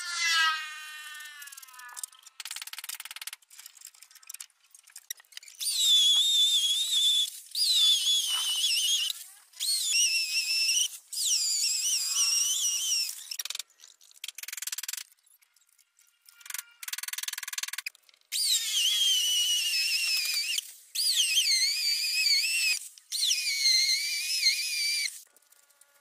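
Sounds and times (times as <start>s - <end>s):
high-pitched whistle-like tones: 5.5s - 13.4s, 18.3s - 25.2s.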